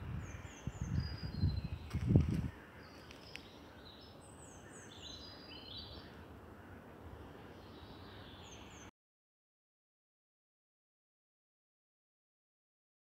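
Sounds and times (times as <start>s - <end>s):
small songbird singing: 0.0s - 6.2s.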